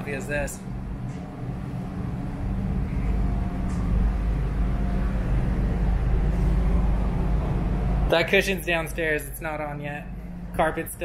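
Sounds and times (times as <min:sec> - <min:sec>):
diesel engines droning: 0:00.0 - 0:11.0.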